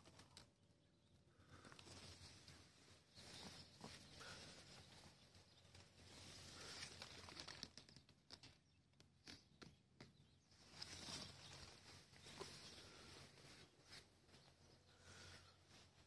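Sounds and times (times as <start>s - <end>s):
soft clicks and rustles: 1.6s - 14.6s.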